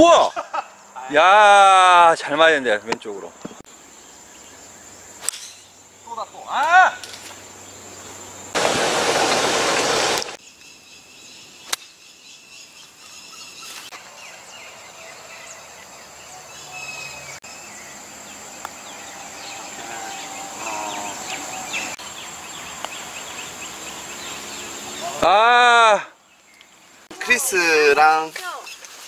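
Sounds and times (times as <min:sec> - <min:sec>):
bird chirps and trills: 0:03.4 - 0:06.2, 0:10.4 - 0:25.2
sharp click: 0:05.2 - 0:05.6
burst of rushing noise: 0:08.6 - 0:10.4
high-pitched insect buzz: 0:16.6 - 0:25.2.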